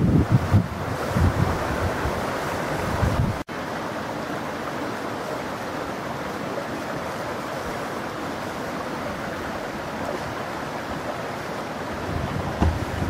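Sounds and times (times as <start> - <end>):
stream rushing over stones: 0.0 - 13.0.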